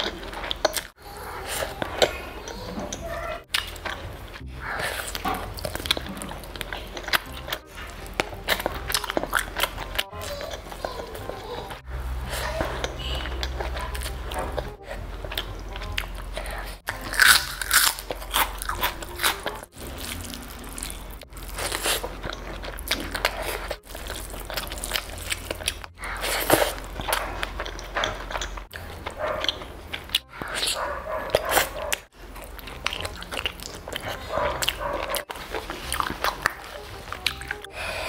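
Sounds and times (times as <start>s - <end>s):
person chewing food: 0.0s - 38.0s
crisp crunches: 16.9s - 28.6s.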